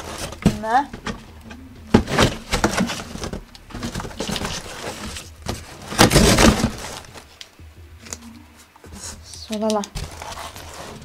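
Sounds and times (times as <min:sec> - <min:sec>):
cardboard scraping: 0:00.0 - 0:07.4, 0:10.0 - 0:11.0
plastic packaging crinkling: 0:01.9 - 0:08.2, 0:09.2 - 0:11.0.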